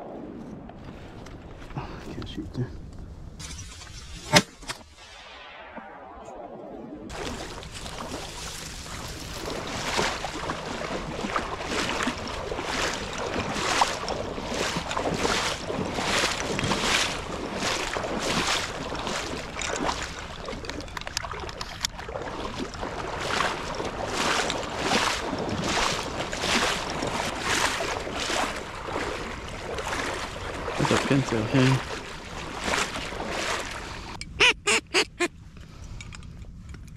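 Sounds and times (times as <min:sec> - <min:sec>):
footsteps wading through water: 0:07.1 - 0:35.8.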